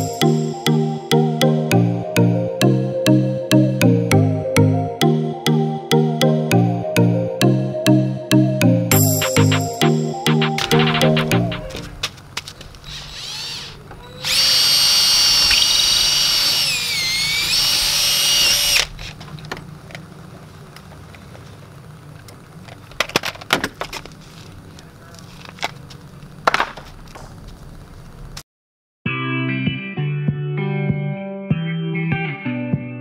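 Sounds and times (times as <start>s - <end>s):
cordless drill running: 12.8s - 19.0s.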